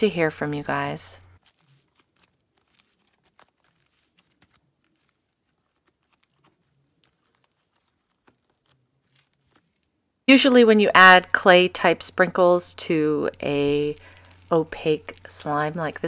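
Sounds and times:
slime crackling when stretched: 0:00.8 - 0:10.0, 0:13.2 - 0:16.0.

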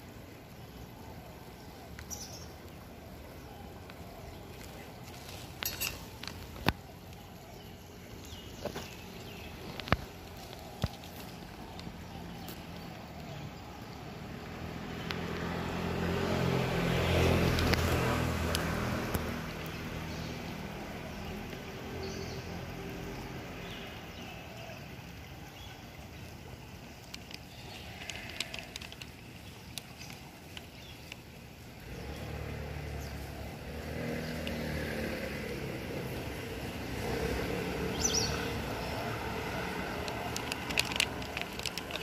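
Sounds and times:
vehicle engine passing: 0:14.3 - 0:22.0, 0:31.8 - 0:42.0.

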